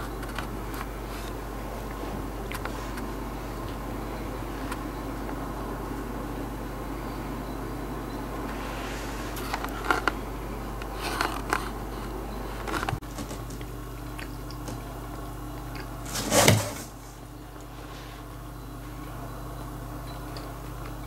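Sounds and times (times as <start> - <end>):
low room hum: 0.0 - 21.0
cat rustling in cardboard box: 16.1 - 17.2.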